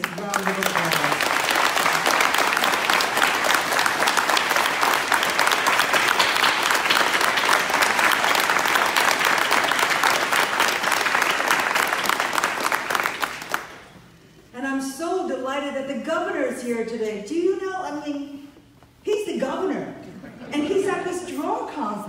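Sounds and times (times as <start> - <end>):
audience applauding: 0.0 - 14.0.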